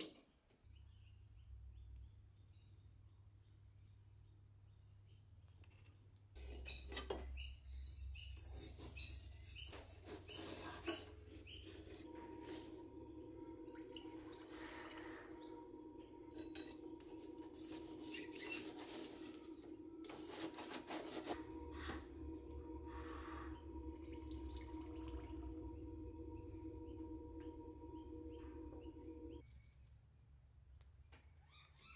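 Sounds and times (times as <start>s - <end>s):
forge air blower humming: 10.7s - 29.4s.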